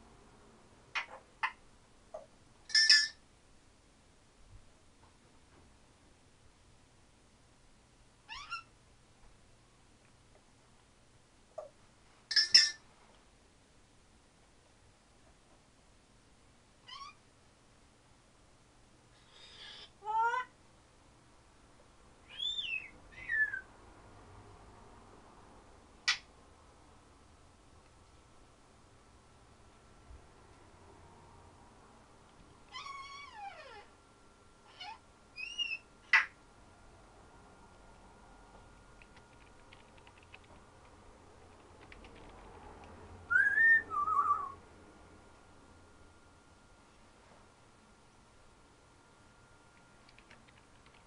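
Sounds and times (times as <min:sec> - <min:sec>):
parrot whistling: 0:22.2 - 0:23.7, 0:34.8 - 0:36.3, 0:43.3 - 0:44.6
faint clicks: 0:39.0 - 0:43.0, 0:49.8 - 0:51.0.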